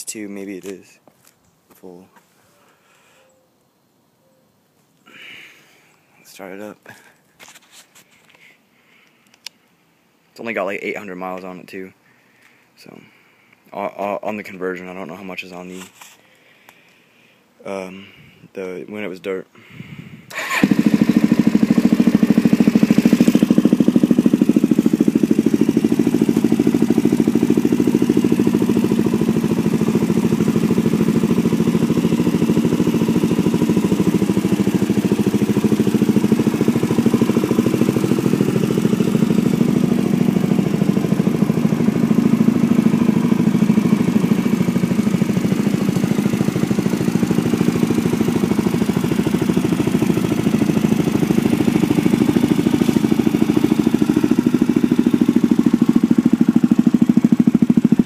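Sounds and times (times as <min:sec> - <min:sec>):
motorcycle engine starting and idling: 0:20.3 - 0:58.0.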